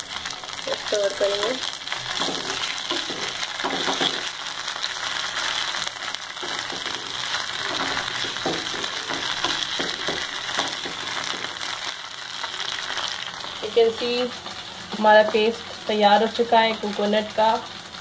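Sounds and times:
food sizzling in hot oil: 0.0s - 18.0s
spatula scraping pan: 2.0s - 4.4s, 6.4s - 11.6s.

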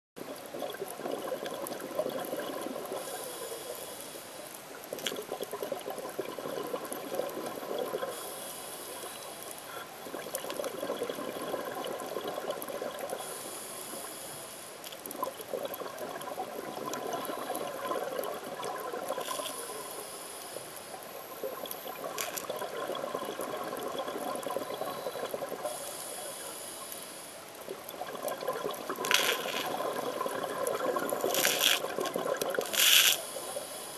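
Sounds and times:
bubbling exhale: 0.4s - 4.2s, 4.9s - 14.4s, 15.2s - 26.9s, 27.7s - 33.9s
regulator hissing inhale: 3.0s - 4.5s, 8.1s - 9.9s, 13.2s - 14.8s, 19.3s - 21.0s, 24.9s - 27.4s, 32.6s - 33.9s.

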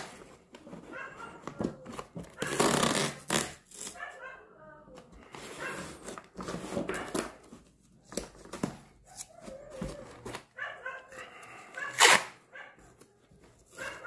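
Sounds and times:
masking tape peeling off cardboard: 2.4s - 4.0s.

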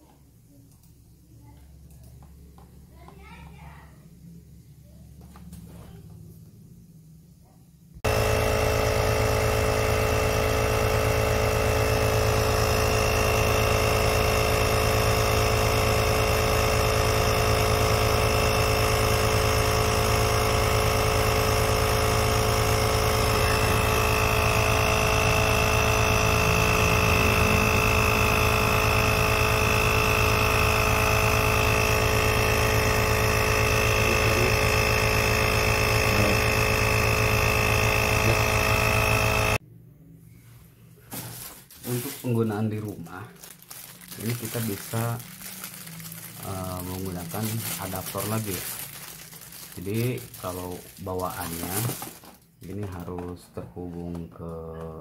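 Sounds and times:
tire inflator compressor running: 8.0s - 39.6s, 41.0s - 53.3s.

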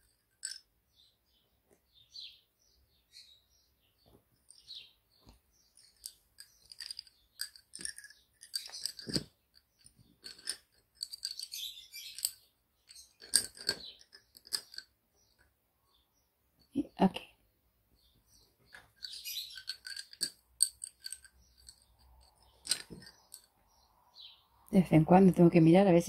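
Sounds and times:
lace bobbins clicking: 0.0s - 0.7s, 4.4s - 15.5s, 18.7s - 23.5s.

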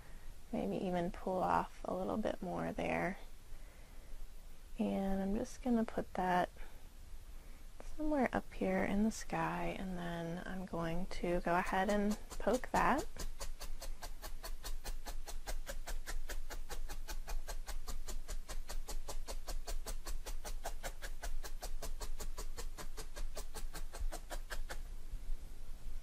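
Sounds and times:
felting needle poking into foam: 10.8s - 24.8s.

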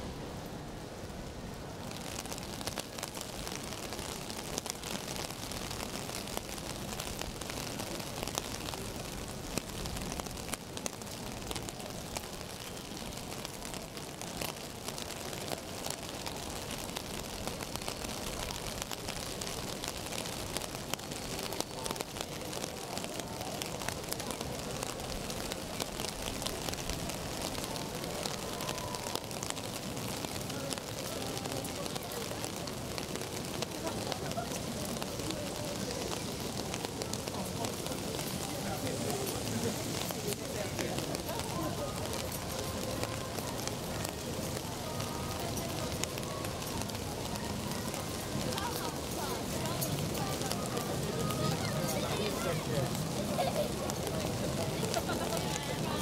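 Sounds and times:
rain falling on street: 0.0s - 56.0s.

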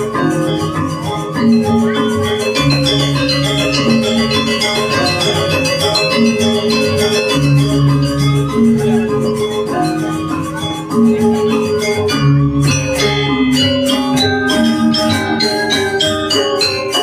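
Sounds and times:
gamelan metallophones striking: 0.0s - 17.0s.

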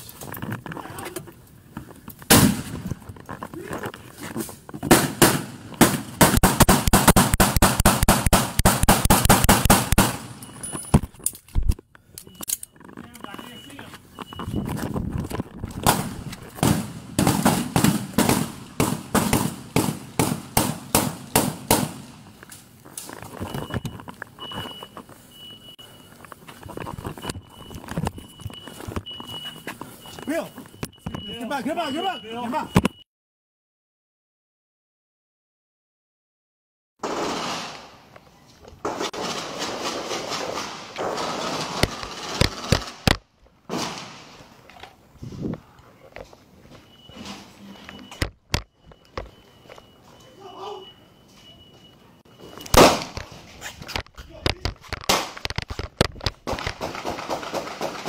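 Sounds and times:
rapid gunshots: 4.9s - 10.3s, 15.8s - 22.1s, 56.5s - 58.0s
camera moving noise: 10.7s - 16.6s, 22.4s - 25.3s, 26.1s - 31.2s, 52.6s - 57.1s.

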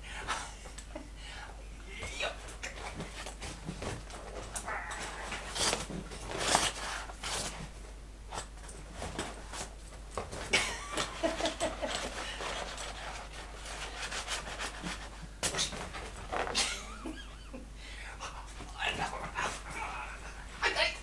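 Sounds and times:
dog scuffling and rustling: 2.3s - 16.7s.

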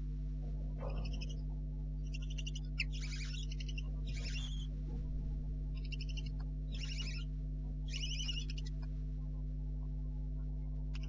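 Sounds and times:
steady low hum: 0.0s - 11.0s
owlets hissing begging calls: 2.1s - 4.6s, 5.8s - 7.2s, 7.9s - 8.8s.

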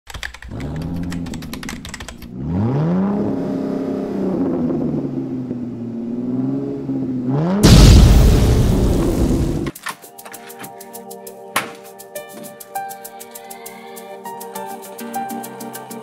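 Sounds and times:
keyboard typing clicks: 0.1s - 2.3s
car engine revving: 0.5s - 9.7s
loud boom: 7.6s - 9.7s.

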